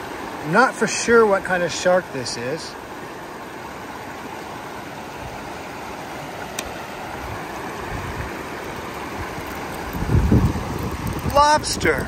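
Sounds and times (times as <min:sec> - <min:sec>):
river water rushing over stones: 0:00.0 - 0:12.0
small click: 0:06.5 - 0:06.7
wind rumble on microphone: 0:07.2 - 0:12.0.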